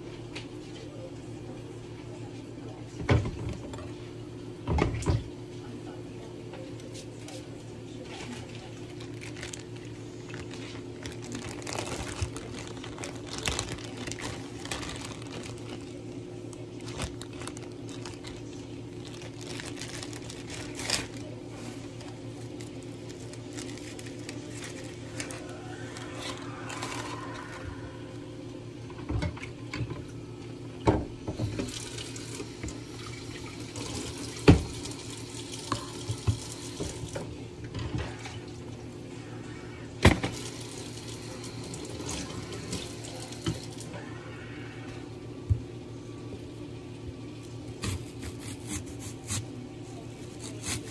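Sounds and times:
steady low hum: 0.0 - 31.4
water running: 31.5 - 37.2, 40.3 - 43.9.

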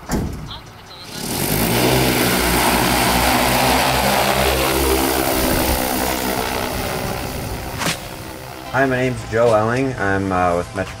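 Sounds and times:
drone propellers whirring: 1.0 - 10.0.

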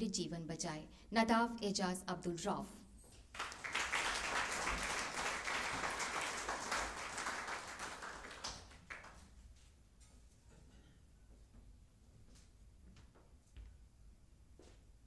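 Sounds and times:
audience applauding: 3.3 - 9.3.

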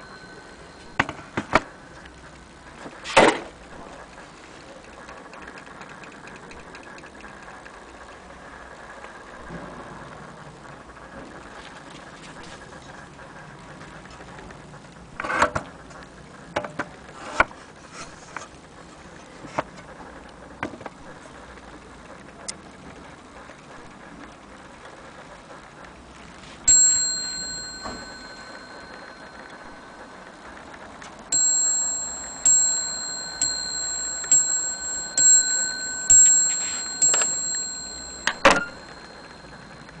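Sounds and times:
mantel clock bell striking: 0.0 - 1.1, 26.7 - 30.6, 31.3 - 40.0.

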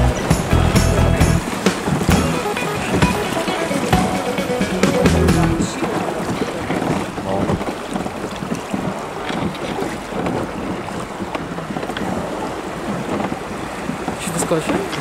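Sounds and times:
river water rushing: 0.0 - 15.0
wind buffeting microphone: 5.4 - 15.0.

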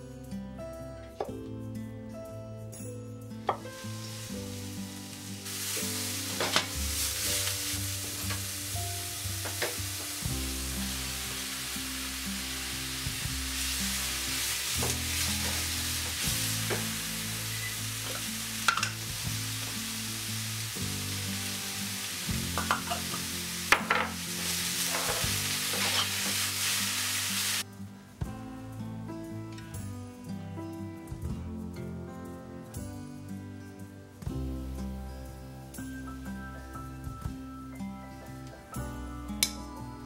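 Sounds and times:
soft background music: 0.0 - 40.0
vegetables sizzling in a frying pan: 3.6 - 27.7.

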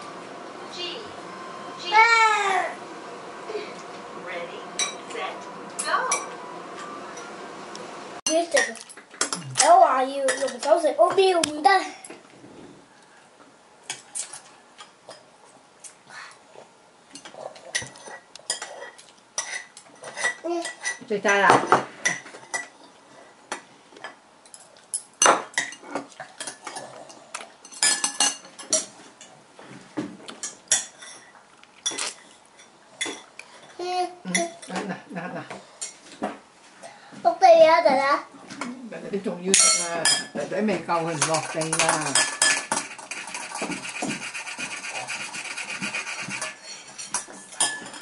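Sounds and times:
spoon clinking on ceramic plate: 46.4 - 48.0.

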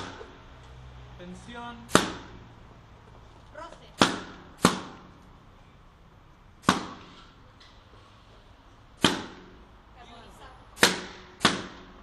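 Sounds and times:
balloons bursting: 4.0 - 5.1, 6.6 - 7.3, 8.9 - 9.6.

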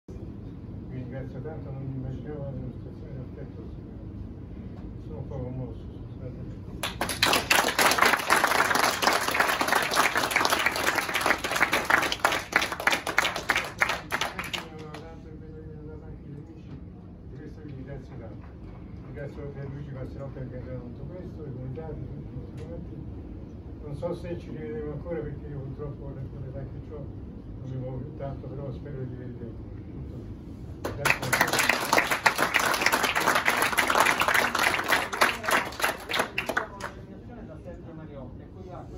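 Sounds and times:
crowd applauding: 6.8 - 15.0, 30.8 - 37.0.

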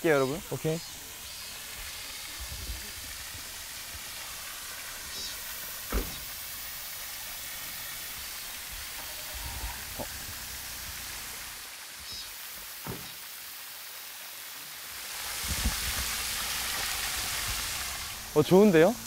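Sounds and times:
fountain water splashing: 0.0 - 19.0
sharp thump: 5.9 - 6.3, 12.8 - 13.2.

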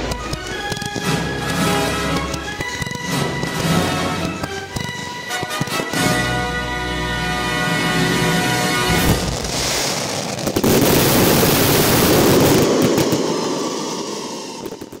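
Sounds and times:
firework barrage crackling: 0.0 - 6.4, 8.0 - 15.0
music: 0.0 - 9.6.

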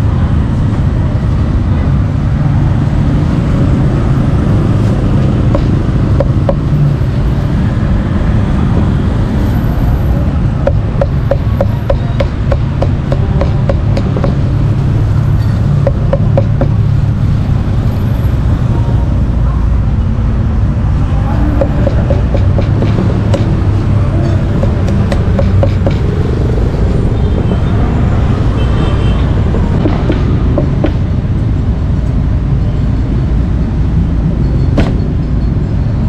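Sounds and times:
low rumble of street traffic: 0.0 - 36.0
cleaver chopping meat on a block: 10.7 - 14.4, 21.6 - 23.6, 24.6 - 26.1.

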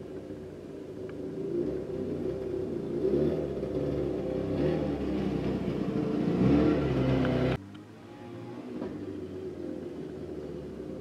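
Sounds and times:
snowmobile engine driving by: 1.2 - 7.6.

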